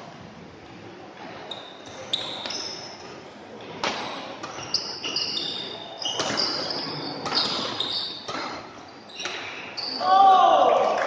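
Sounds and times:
shoes squeaking on court: 0:01.2 - 0:10.0.

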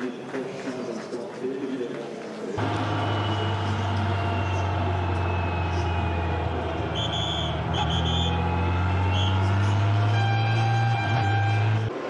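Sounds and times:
high whistle blasts: 0:02.8 - 0:11.9.

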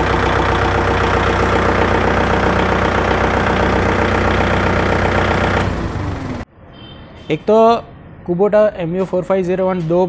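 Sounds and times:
tractor diesel engine idling: 0:00.0 - 0:06.4.

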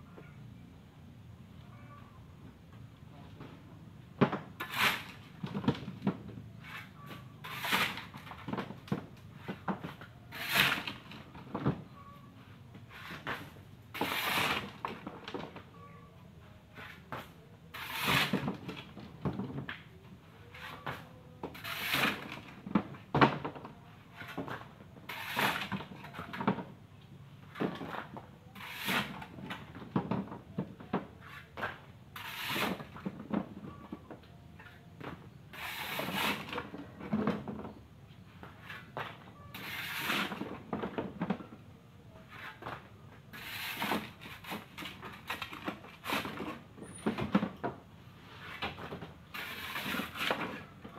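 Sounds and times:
small knocks and scrapes: 0:02.8 - 0:26.8, 0:27.4 - 0:50.9
shovel scraping into gravel: 0:04.6 - 0:05.2, 0:06.6 - 0:08.2, 0:10.3 - 0:11.1, 0:14.0 - 0:14.7, 0:17.8 - 0:18.4, 0:21.6 - 0:22.4, 0:25.1 - 0:26.2, 0:28.6 - 0:29.2, 0:32.2 - 0:32.9, 0:35.5 - 0:36.5, 0:39.6 - 0:40.4, 0:43.3 - 0:44.7, 0:49.3 - 0:50.6.

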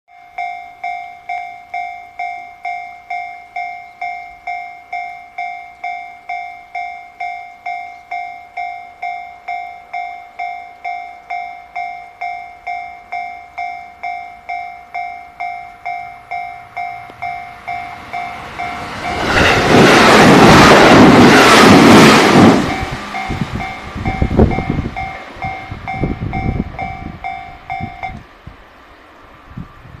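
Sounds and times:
level crossing bell ringing: 0:00.1 - 0:19.9, 0:22.6 - 0:28.2
electric train passing: 0:00.1 - 0:30.0
wheels clacking over rail joints: 0:14.5 - 0:28.3.

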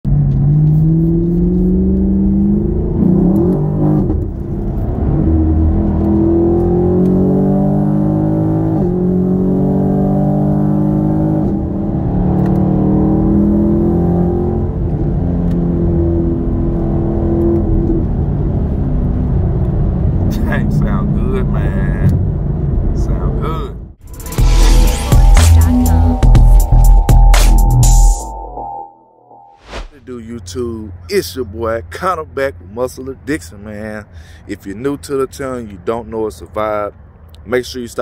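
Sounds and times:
car engine and exhaust from cabin: 0:00.1 - 0:23.8.

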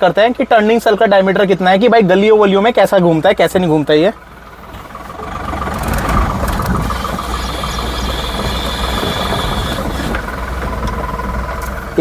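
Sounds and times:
diesel engine running: 0:03.1 - 0:12.0
tyres crunching on gravel: 0:04.8 - 0:11.8.

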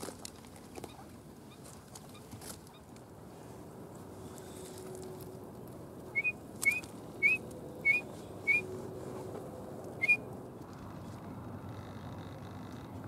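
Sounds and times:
duck whistled calls: 0:06.1 - 0:08.7, 0:10.0 - 0:10.2.

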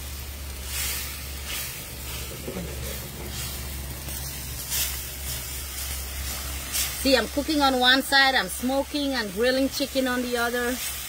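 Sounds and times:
food sizzling in frying pan: 0:00.0 - 0:11.0
wooden spoon scraping pan: 0:01.5 - 0:07.0.

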